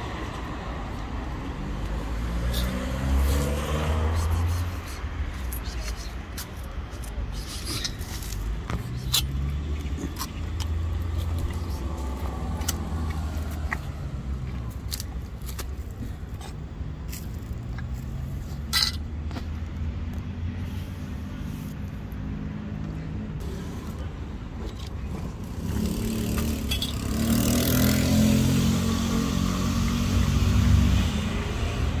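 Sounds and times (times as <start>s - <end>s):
motor vehicle passing: 0.0s - 6.5s, 7.3s - 16.5s, 25.0s - 32.0s
road traffic rumble: 0.0s - 32.0s.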